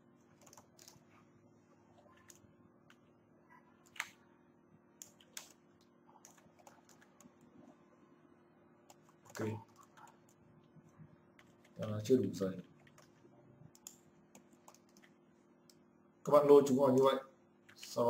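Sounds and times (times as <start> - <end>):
faint steady hum: 0.0 - 18.0
keyboard and mouse clicks: 0.4 - 1.0, 3.8 - 4.2, 5.0 - 7.5, 8.9 - 10.4, 12.7 - 15.8.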